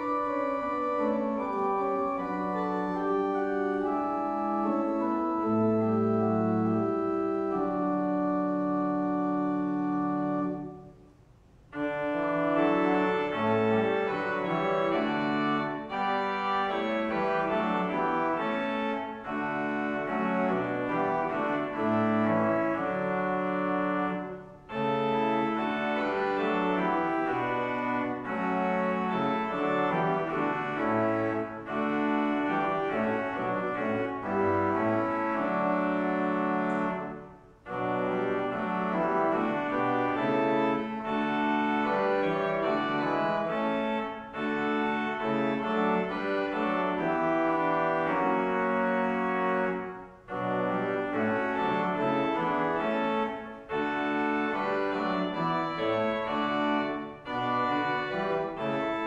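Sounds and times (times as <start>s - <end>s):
church organ playing held chords: 0.0s - 59.0s.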